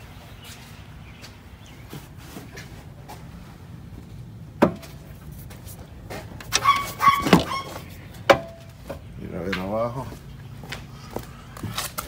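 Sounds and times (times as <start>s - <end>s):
short pitched cries: 6.6s - 7.9s.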